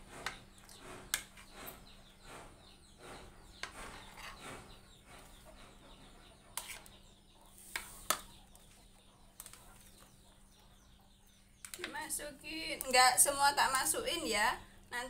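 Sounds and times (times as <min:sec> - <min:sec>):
metal spoon scraping plastic bowl: 0:03.6 - 0:05.5, 0:06.5 - 0:08.3.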